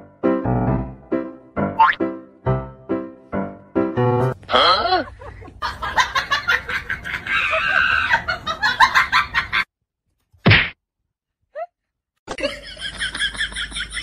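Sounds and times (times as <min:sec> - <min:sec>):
playful background music: 0:00.0 - 0:04.4.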